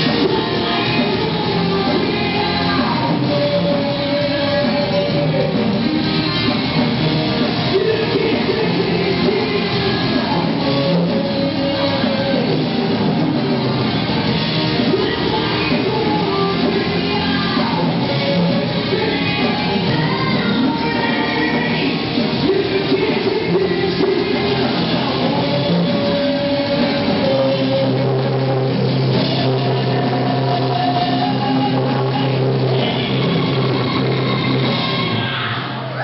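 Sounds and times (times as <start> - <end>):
metal band playing live: 0.0 - 36.0
singer's vocals: 0.0 - 36.0.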